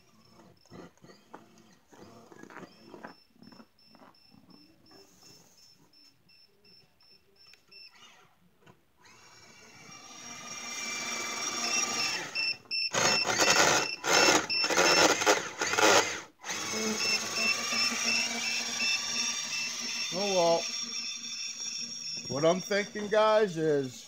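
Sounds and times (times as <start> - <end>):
toy motor whining: 0.0 - 3.7, 9.0 - 24.0.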